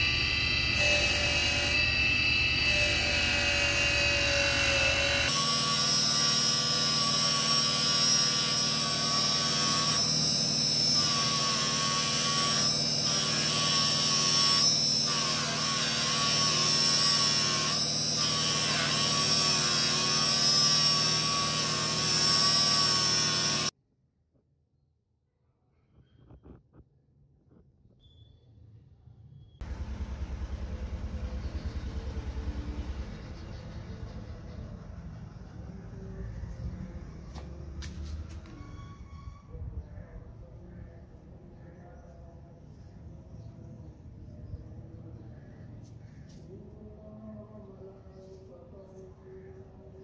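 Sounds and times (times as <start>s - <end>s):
bench grinder whine: 0.0s - 23.8s.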